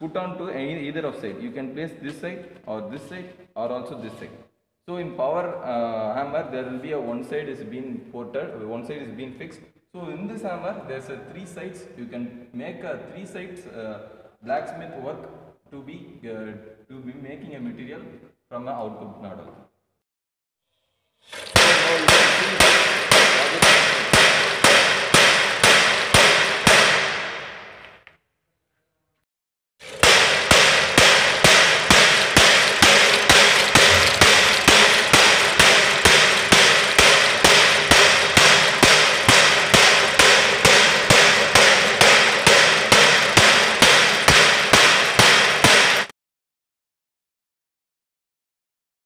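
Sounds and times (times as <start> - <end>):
hammer striking steel anvil: 21.4 - 27.8, 29.8 - 46.1.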